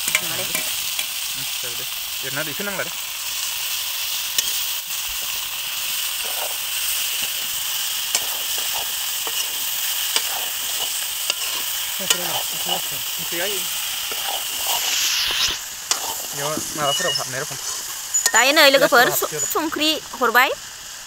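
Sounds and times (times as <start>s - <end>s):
vegetables sizzling in oil: 0.0s - 21.0s
metal spoon stirring: 6.0s - 19.6s.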